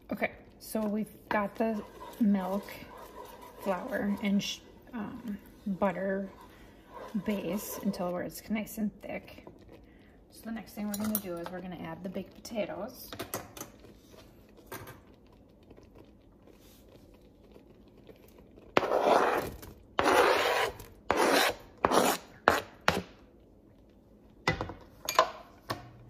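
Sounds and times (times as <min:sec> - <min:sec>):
spoon scraping on cutting board: 0:01.3 - 0:08.1, 0:18.8 - 0:23.0.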